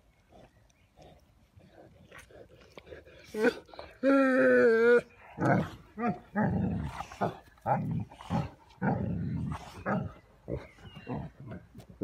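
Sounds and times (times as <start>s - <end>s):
dogs growling and grunting: 1.0s - 12.0s.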